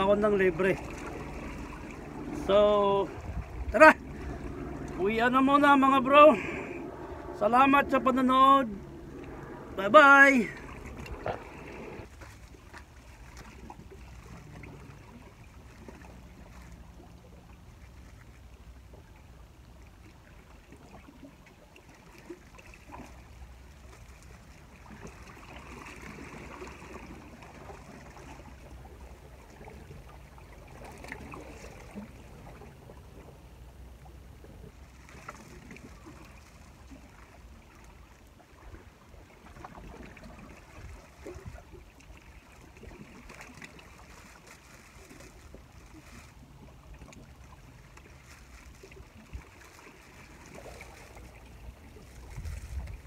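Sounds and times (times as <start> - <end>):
low steady rumble: 0.0 - 53.0
waves lapping against rocks: 0.0 - 53.0.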